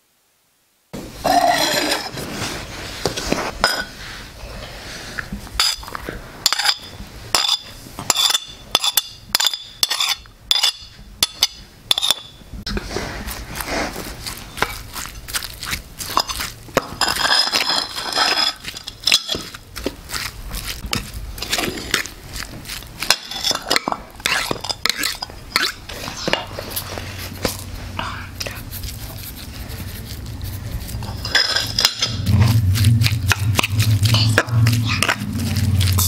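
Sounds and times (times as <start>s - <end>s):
spoon stirring onions in a bowl: 5.5s - 27.7s, 28.4s - 36.0s
spoon clinking on ceramic dishes: 6.5s - 12.4s, 31.2s - 32.3s.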